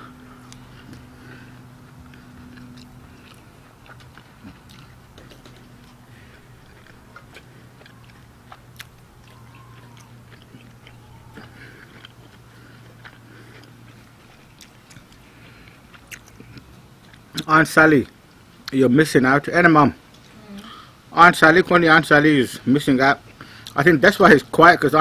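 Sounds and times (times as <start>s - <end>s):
person chewing meat: 0.0s - 18.8s
steady low hum: 0.0s - 25.0s
wet chewing clicks: 0.3s - 18.8s.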